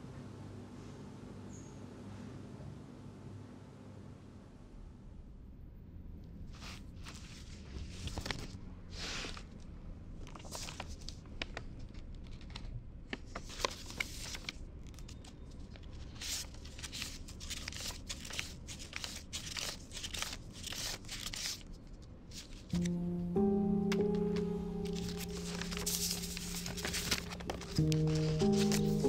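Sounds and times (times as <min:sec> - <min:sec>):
paper rustling and crinkling: 0:06.6 - 0:09.6, 0:10.2 - 0:22.9, 0:23.9 - 0:29.0
paper tearing: 0:16.2 - 0:22.9, 0:25.0 - 0:29.0
music with held low notes: 0:22.7 - 0:29.0.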